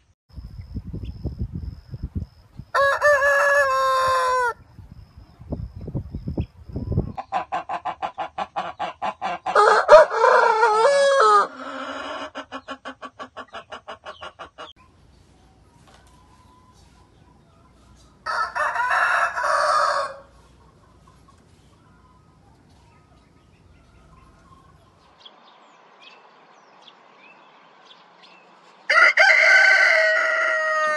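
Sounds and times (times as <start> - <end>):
rooster crowing: 2.7 - 4.6, 9.5 - 12.3, 18.2 - 20.4, 28.9 - 30.9
rapid clucking calls: 6.9 - 9.6, 11.6 - 14.9, 20.3 - 22.1.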